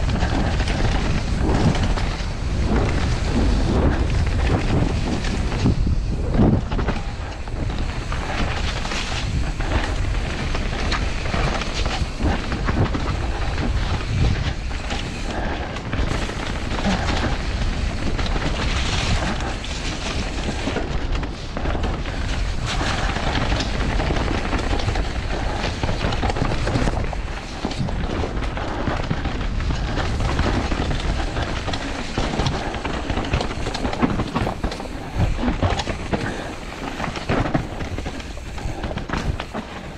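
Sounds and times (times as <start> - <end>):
bike rattling and knocking: 0.0 - 39.9
tyres rumbling over dirt: 0.0 - 39.9
wind buffeting microphone: 0.0 - 39.9.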